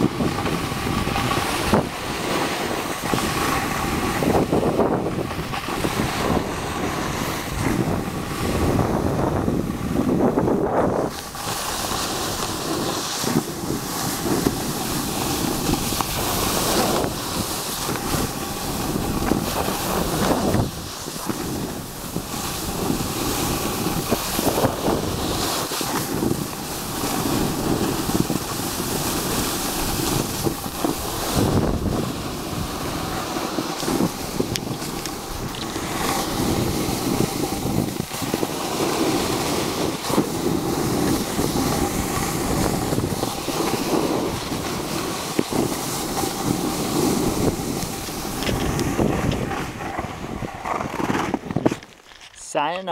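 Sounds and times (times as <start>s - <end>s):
wind buffeting microphone: 0.0s - 52.1s
skis scraping on snow: 0.0s - 52.9s.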